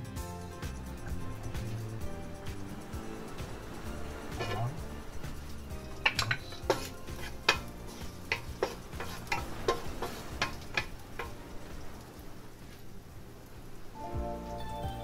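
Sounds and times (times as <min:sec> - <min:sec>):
wooden spoon scraping a pot: 0:03.8 - 0:11.4.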